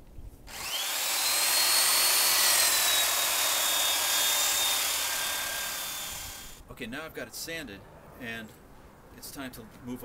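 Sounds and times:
belt sander on wood: 0.5 - 6.6.

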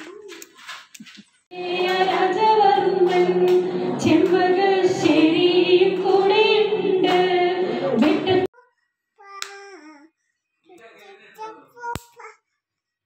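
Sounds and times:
song with singing voice: 1.5 - 8.5.

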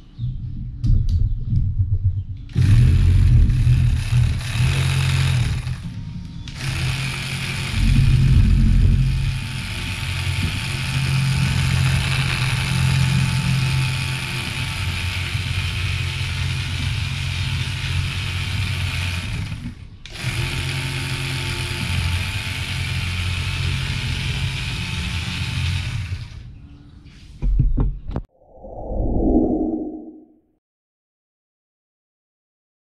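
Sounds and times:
small electric motors whirring: 2.5 - 26.4.

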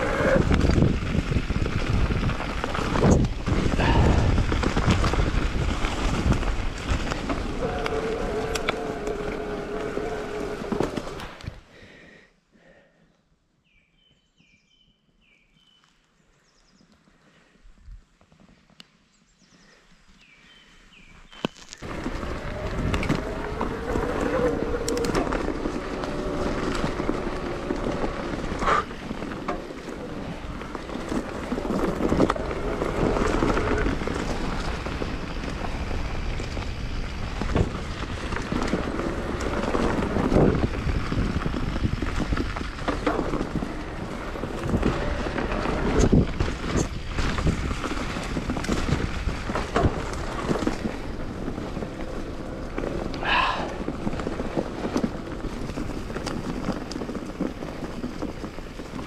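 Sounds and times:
tyre rumble on dirt: 0.0 - 11.6, 21.3 - 59.0
wind buffeting microphone: 0.0 - 11.6, 21.8 - 59.0
bike knocks and rattles: 21.8 - 53.1.

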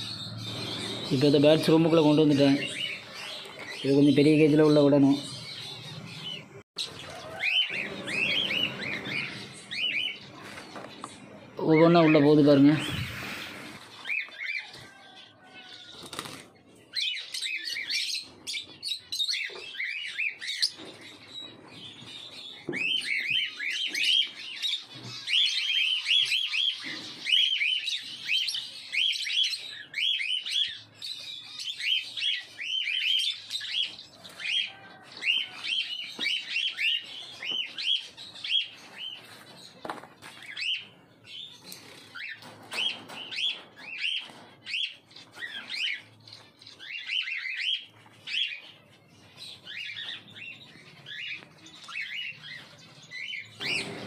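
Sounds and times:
lovebirds chirping: 0.0 - 54.0.

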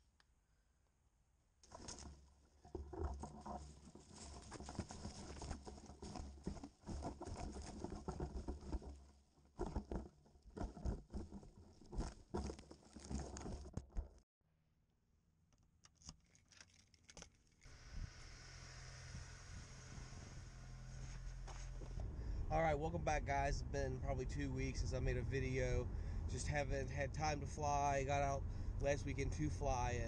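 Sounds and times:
leaves and twigs rustling: 1.6 - 13.8.

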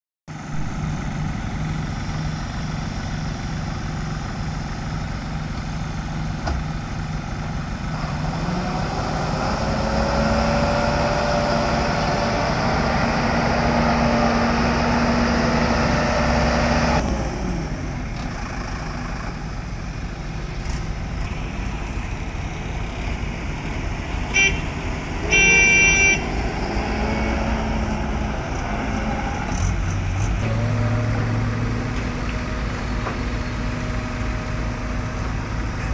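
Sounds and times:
concrete mixer diesel engine: 0.3 - 35.9
horn toot: 24.3 - 24.7, 25.3 - 26.3.

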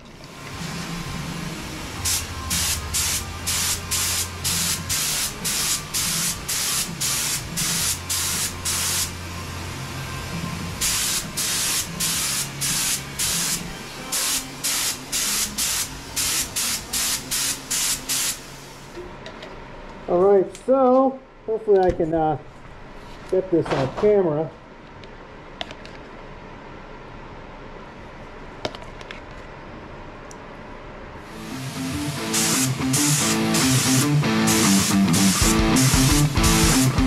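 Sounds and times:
low hum: 0.4 - 6.2
spray gun hissing bursts: 1.7 - 9.3, 10.8 - 18.9, 31.3 - 37.0.

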